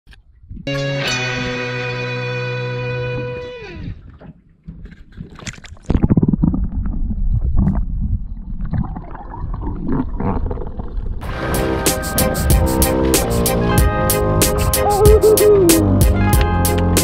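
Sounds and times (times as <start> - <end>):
water noise: 3.0 - 11.3, 14.4 - 16.1.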